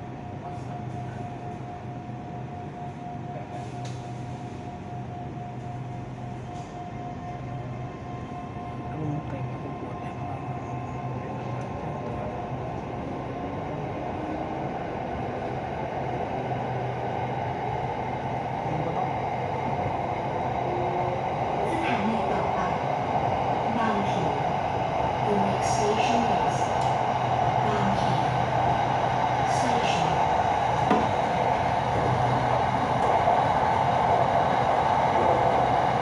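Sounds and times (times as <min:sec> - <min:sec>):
train running noise: 0:00.0 - 0:36.0.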